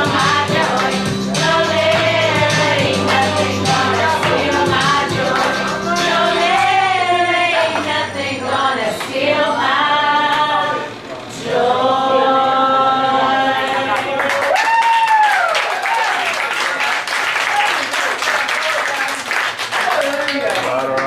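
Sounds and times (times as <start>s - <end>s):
women singing together: 0.0s - 14.3s.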